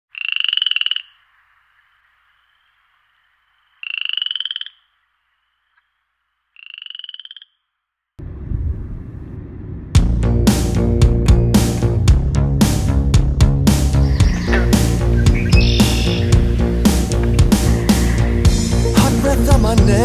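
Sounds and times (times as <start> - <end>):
frog trilling: 0.1 - 1.3, 3.5 - 7.8, 14.0 - 19.0
low rumbling: 8.2 - 20.0.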